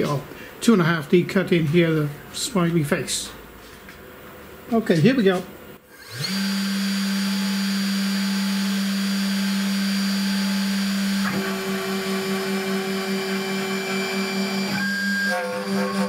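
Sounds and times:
router spindle whine: 5.9s - 16.0s
higher machine whine: 11.2s - 16.0s.

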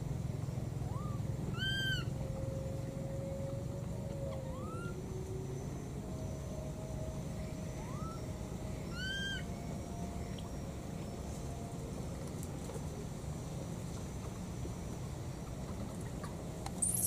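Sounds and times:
steady low background noise: 0.0s - 17.0s
baby monkey calling: 0.8s - 2.1s, 8.9s - 9.4s.

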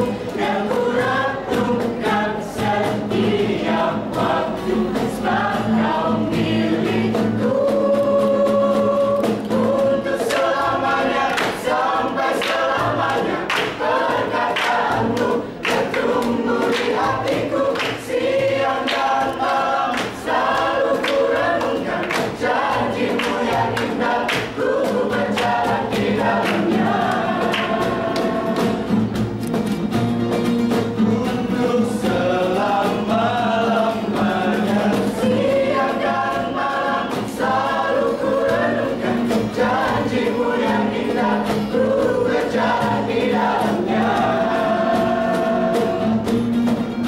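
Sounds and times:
group singing gospel song: 0.0s - 29.3s, 30.8s - 47.0s
acoustic guitar: 0.0s - 47.0s
hand claps: 9.2s - 29.8s.

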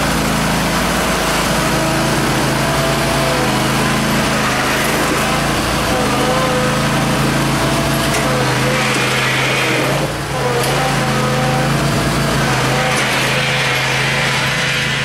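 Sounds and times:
blade pushing snow: 0.0s - 15.0s
lawn tractor engine running: 0.0s - 15.0s.

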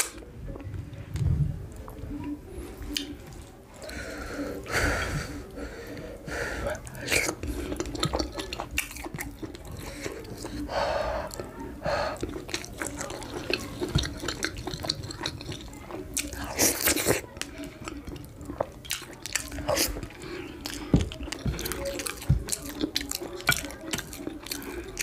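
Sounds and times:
wet chewing and mouth smacking: 1.7s - 4.0s, 6.6s - 10.7s, 11.3s - 25.0s.

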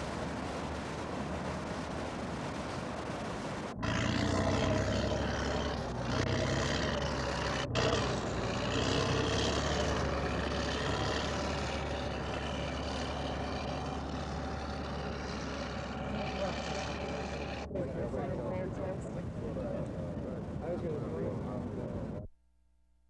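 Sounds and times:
rushing water: 0.0s - 17.7s
bulldozer diesel engine running: 0.0s - 19.4s.

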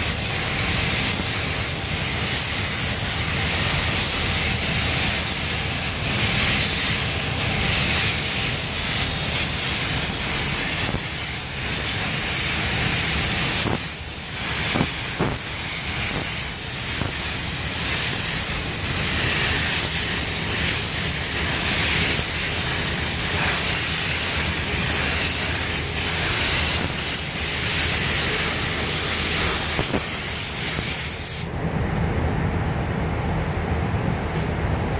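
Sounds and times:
paint spray gun hissing: 0.0s - 31.5s
low rumble: 31.5s - 34.9s.

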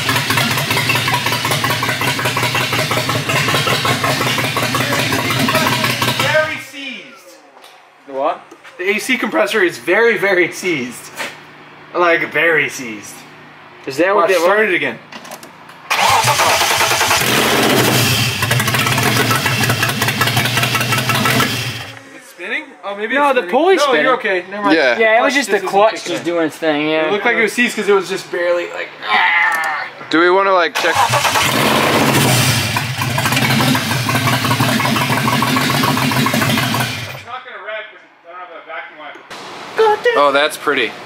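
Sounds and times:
car engine running: 0.0s - 6.6s, 15.9s - 22.0s, 30.9s - 37.3s.

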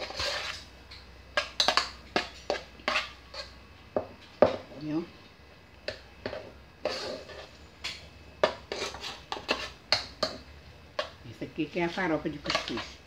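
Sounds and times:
metal pot clinking and scraping: 0.0s - 0.7s, 6.2s - 7.6s, 8.4s - 10.4s, 12.4s - 13.0s.

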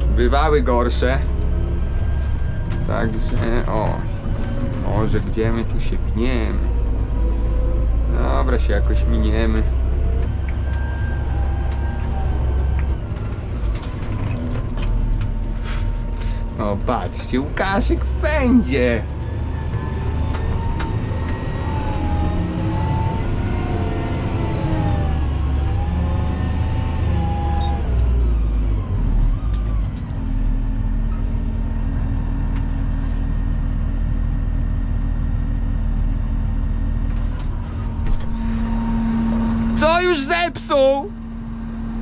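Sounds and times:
tractor engine running: 0.0s - 27.1s.

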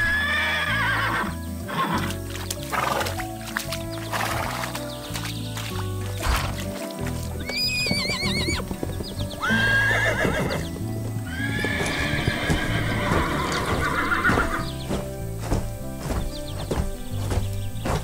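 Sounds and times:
horse neighing: 0.0s - 3.2s, 7.4s - 8.7s, 9.4s - 14.8s
background music: 0.0s - 18.0s
hooves clip-clopping: 0.0s - 18.0s.

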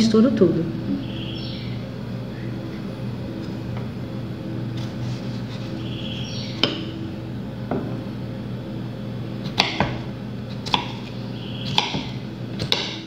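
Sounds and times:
steady low hum: 0.0s - 13.0s
knife striking wooden cutting board: 11.7s - 13.0s.

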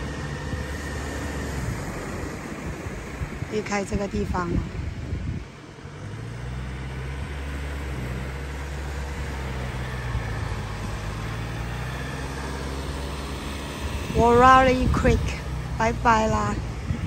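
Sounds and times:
car engine running: 0.0s - 17.0s
road noise: 0.0s - 17.0s.

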